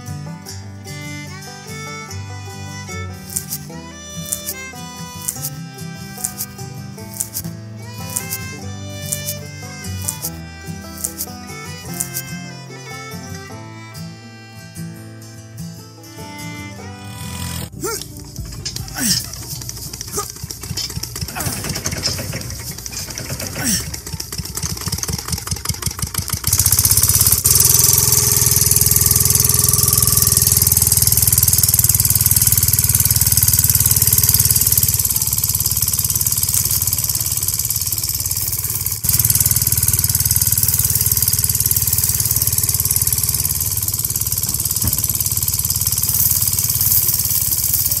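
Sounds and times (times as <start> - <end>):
model engine puttering: 0.0 - 14.5, 16.0 - 48.0
machine noise with strong hiss: 26.4 - 48.0.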